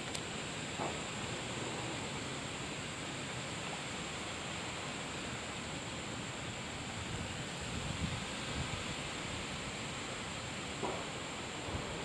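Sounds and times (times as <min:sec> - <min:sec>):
creek hiss: 0:00.0 - 0:12.0.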